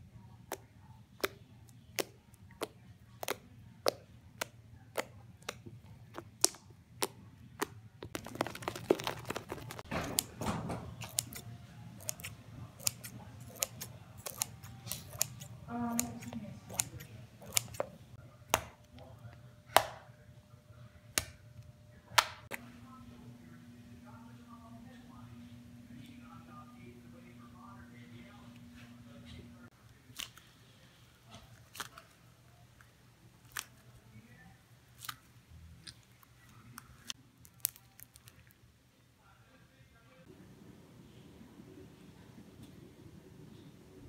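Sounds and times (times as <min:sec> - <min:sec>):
slime squishing and popping: 0:01.2 - 0:10.3.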